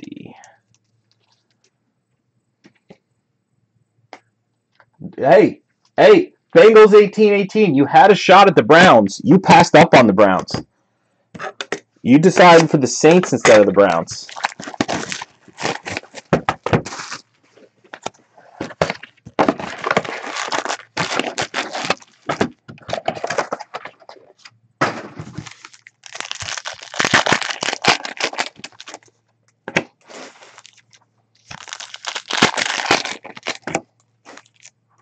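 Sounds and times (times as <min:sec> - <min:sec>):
foil packs crinkling and tearing: 0:12.4 - 0:17.3, 0:17.9 - 0:24.4, 0:25.2 - 0:29.2, 0:30.0 - 0:34.7.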